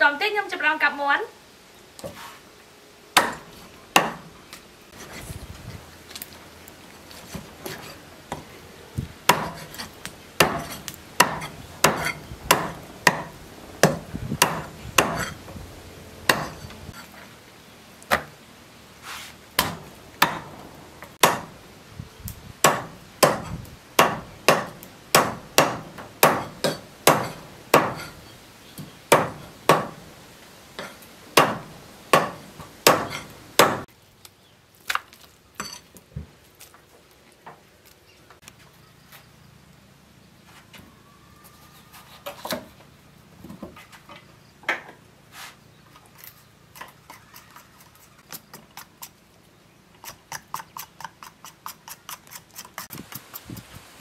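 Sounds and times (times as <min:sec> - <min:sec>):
cleaver chopping chicken on wood: 0:03.2 - 0:04.2, 0:09.3 - 0:09.8, 0:10.4 - 0:15.3, 0:16.3 - 0:16.6, 0:19.6 - 0:20.5, 0:21.2 - 0:21.5, 0:22.6 - 0:28.1, 0:29.1 - 0:30.0, 0:31.4 - 0:33.9.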